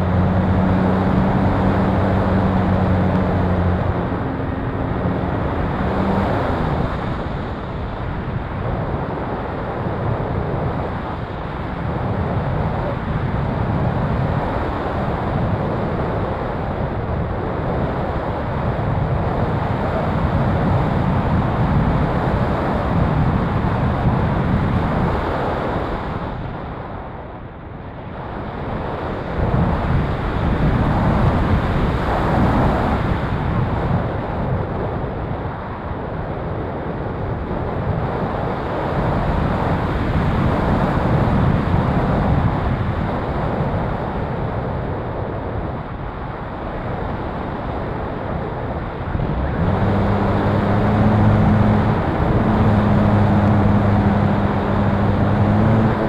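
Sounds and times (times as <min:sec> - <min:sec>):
steady low hum: 0:00.0 - 0:08.0, 0:48.4 - 0:56.0
rushing wind over camera: 0:00.0 - 0:56.0.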